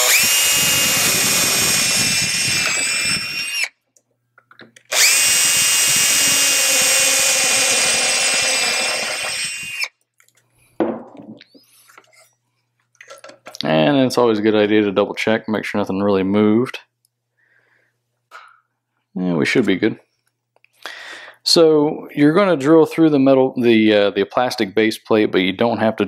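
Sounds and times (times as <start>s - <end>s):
cordless drill boring through plastic: 0.0s - 3.8s, 4.9s - 9.9s.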